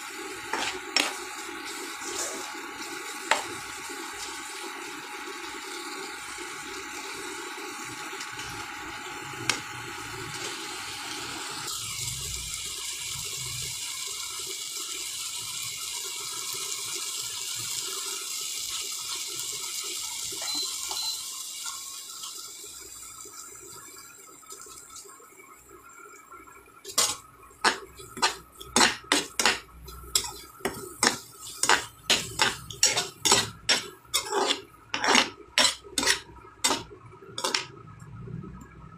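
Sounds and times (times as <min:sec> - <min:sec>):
food sizzling in frying pan: 0:00.0 - 0:24.1, 0:26.6 - 0:37.9
spatula scraping pan: 0:00.4 - 0:02.6, 0:03.3 - 0:03.6, 0:26.9 - 0:37.8.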